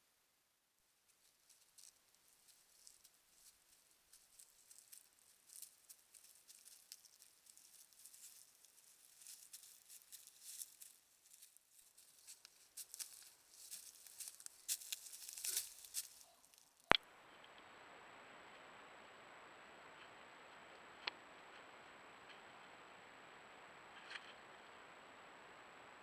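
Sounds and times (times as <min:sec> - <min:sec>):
rustling of dry leaves: 0:01.1 - 0:26.0
hiss with high whine: 0:17.0 - 0:26.0.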